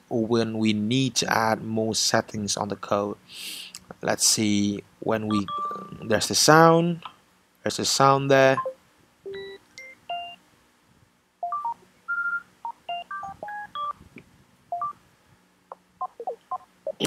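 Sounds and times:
electronic chimes and beeps: 5.3s - 6.1s, 11.4s - 14.0s.

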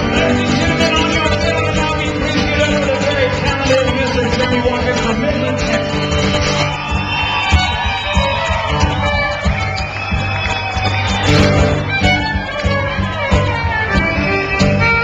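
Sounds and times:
strummed acoustic guitars: 0.0s - 15.0s
bowed fiddle: 11.0s - 15.0s.

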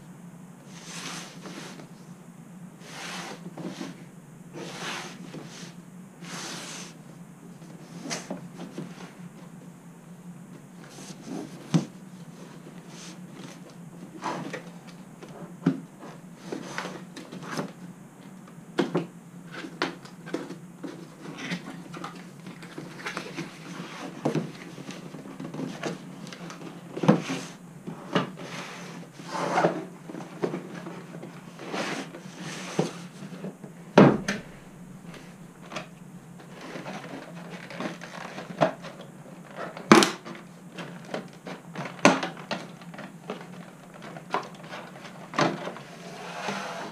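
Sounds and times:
steady low hum: 0.0s - 46.9s
loud thump: 34.0s - 35.7s
packaging scrapes and rustles: 34.4s - 46.9s.

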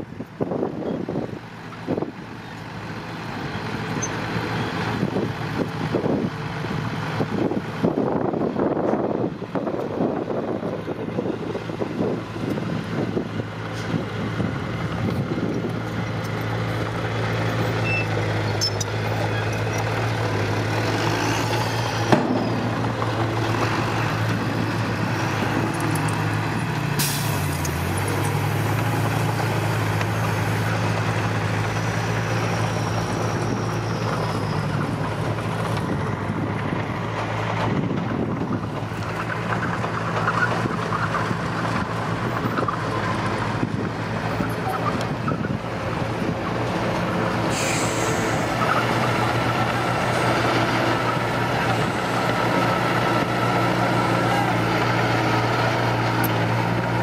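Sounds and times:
diesel engines running: 0.0s - 57.0s.

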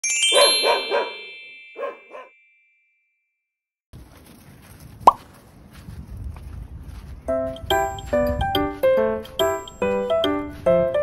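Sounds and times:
dog barks: 0.4s - 1.2s, 1.8s - 2.3s
wind rumble on microphone: 4.0s - 8.6s.

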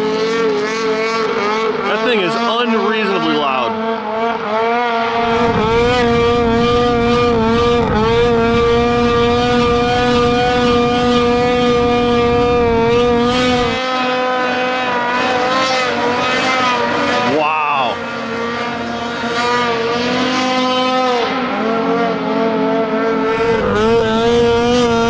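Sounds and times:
snowmobile engine revving: 0.0s - 25.0s
low rumble: 5.3s - 9.8s.

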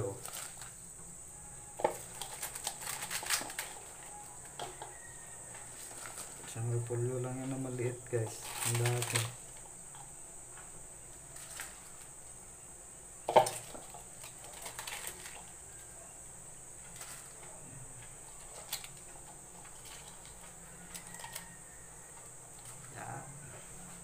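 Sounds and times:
cabbage leaves rustling in pot: 0.0s - 0.8s, 1.8s - 9.7s, 11.2s - 12.2s, 13.5s - 16.1s
faint steady hiss: 0.0s - 24.0s.

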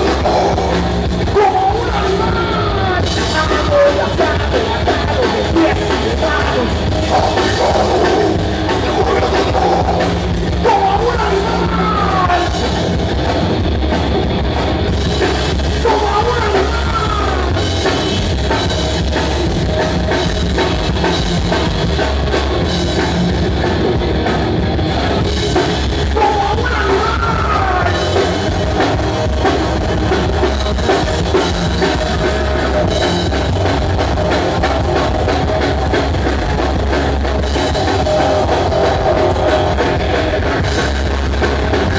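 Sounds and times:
person singing: 0.0s - 12.6s, 15.8s - 17.6s, 26.1s - 28.2s
pounding drum kit: 0.0s - 41.9s
rock band playing: 0.0s - 41.9s.

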